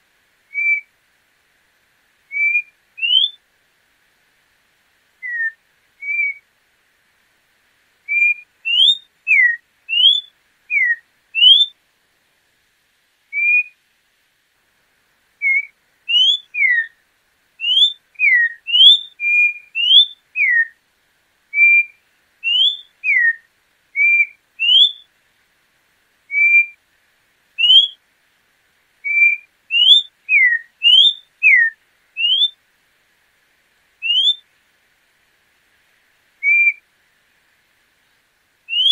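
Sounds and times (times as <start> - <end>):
bird whistling song: 0.5 - 0.9, 2.3 - 3.4, 5.2 - 6.4, 8.1 - 11.8, 13.3 - 13.8, 15.4 - 17.0, 17.6 - 20.8, 21.5 - 25.1, 26.3 - 26.8, 27.6 - 28.0, 29.0 - 32.6, 34.0 - 34.5, 36.4 - 36.8, 38.7 - 38.9.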